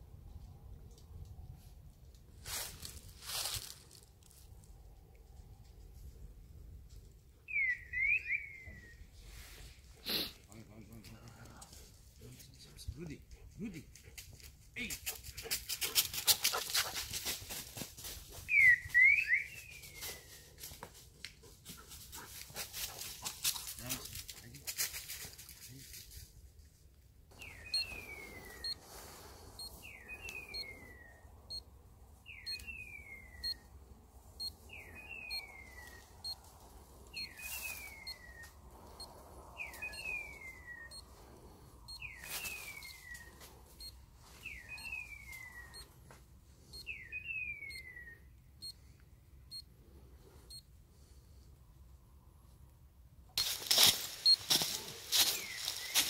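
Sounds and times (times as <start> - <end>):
rustling and handling noise: 2.4 - 4.7, 53.4 - 56.0
falling electronic chirp: 27.5 - 28.8.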